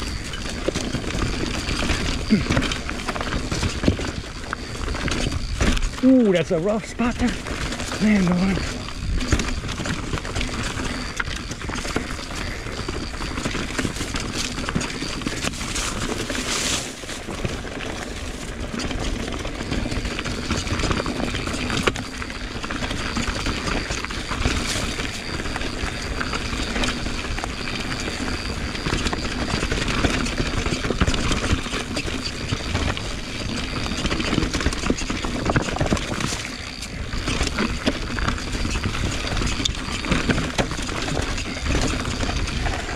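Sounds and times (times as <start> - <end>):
bike rattling and knocking: 0.0 - 42.9
bike tyres on dirt: 0.0 - 42.9.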